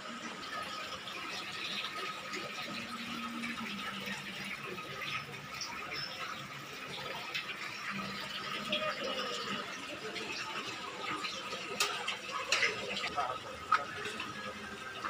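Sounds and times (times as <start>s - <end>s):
running water: 0.0s - 15.0s.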